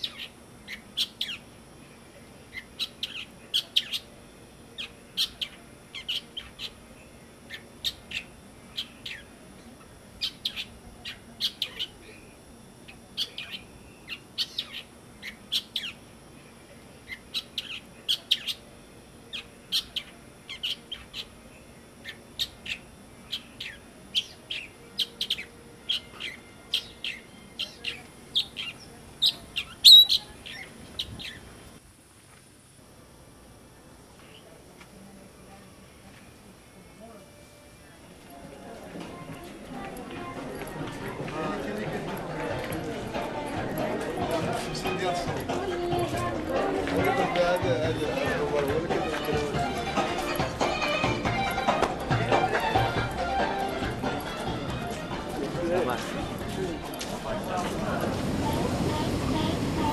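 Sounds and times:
mockingbirds chirping: 0:00.0 - 0:31.7.

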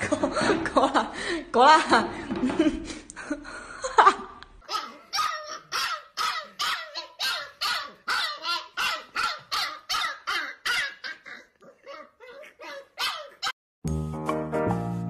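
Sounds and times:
puppy crying: 0:04.6 - 0:13.6
puppy yelping barks: 0:04.7 - 0:13.6.

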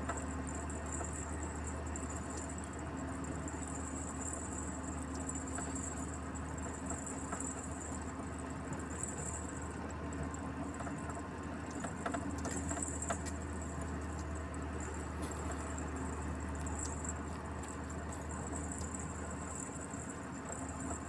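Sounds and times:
truck engine droning: 0:11.7 - 0:21.0
tyre and road noise: 0:11.9 - 0:21.0.

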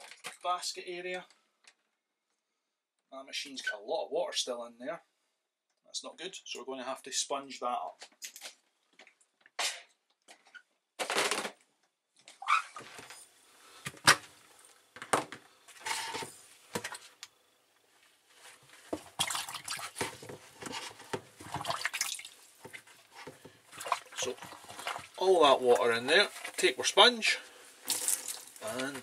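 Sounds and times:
water sloshing and dripping: 0:18.8 - 0:26.8, 0:27.7 - 0:29.0.

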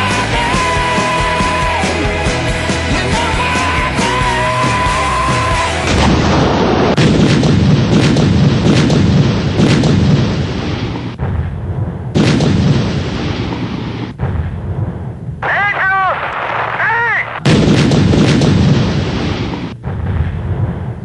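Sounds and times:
low rumble: 0:00.0 - 0:15.4, 0:17.4 - 0:21.0
tank gunfire booms: 0:05.8 - 0:21.0.

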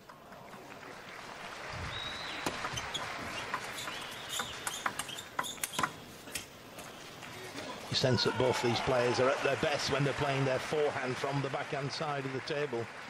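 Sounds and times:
crowd noise: 0:00.0 - 0:05.1, 0:05.9 - 0:13.0
shoe squeaks: 0:02.0 - 0:06.0.

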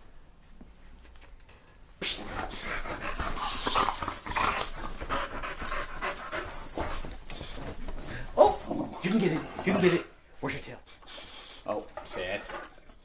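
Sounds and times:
dog making play noises: 0:02.0 - 0:10.2, 0:10.8 - 0:13.0.

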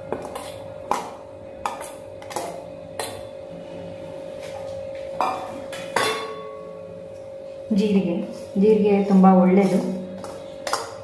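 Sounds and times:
metal bowl clinking against pan: 0:05.2 - 0:06.8
metallic ring: 0:06.0 - 0:06.9.

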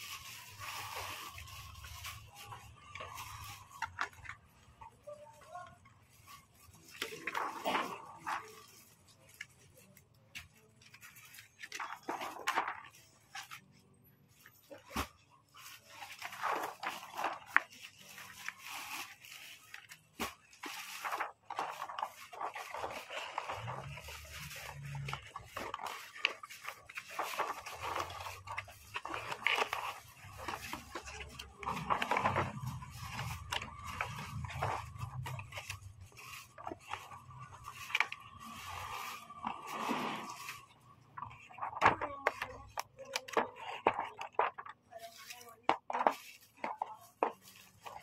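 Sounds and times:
cardboard scraping and rustling: 0:10.4 - 0:13.7, 0:14.4 - 0:48.0.

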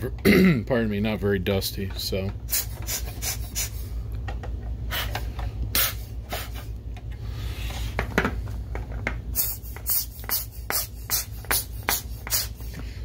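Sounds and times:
steady low hum: 0:00.0 - 0:13.0
air blower puffing: 0:02.1 - 0:13.0.

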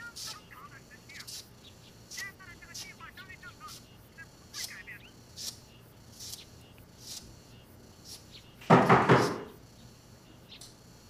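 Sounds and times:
faint ticks: 0:06.2 - 0:07.3
loud knocks on door: 0:08.6 - 0:09.6.

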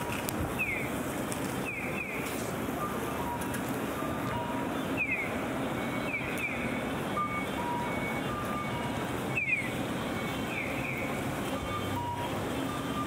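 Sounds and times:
street traffic hum: 0:00.0 - 0:13.0
crossing signal chirps: 0:01.6 - 0:13.0
two-pitch beeps: 0:07.2 - 0:13.0.

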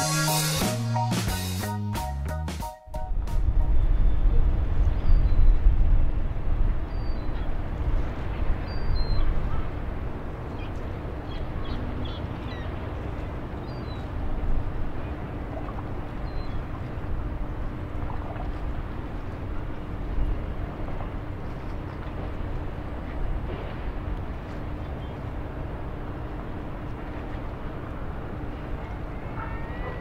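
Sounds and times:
low rumble: 0:02.9 - 0:10.0
low engine hum: 0:03.0 - 0:30.0.

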